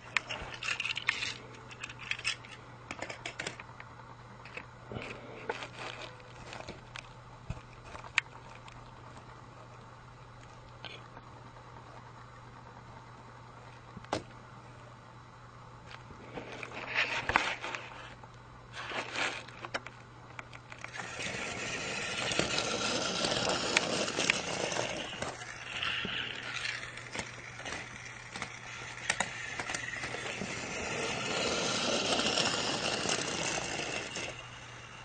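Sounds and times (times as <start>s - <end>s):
toy train motor whir and rattle: 0.0s - 3.6s, 20.8s - 35.0s.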